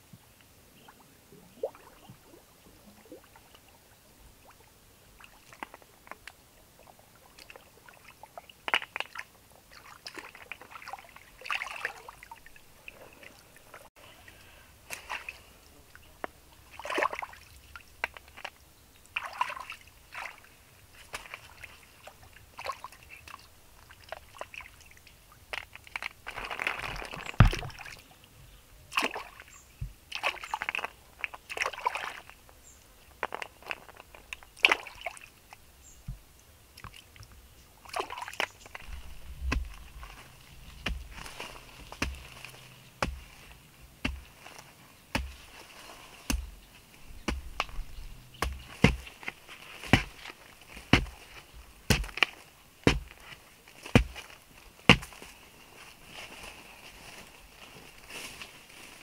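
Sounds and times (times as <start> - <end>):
water sloshing and splashing: 0.8 - 13.9, 14.8 - 28.2, 28.9 - 32.4, 33.2 - 36.2, 36.8 - 55.3
loud splash with thump: 27.2 - 28.0.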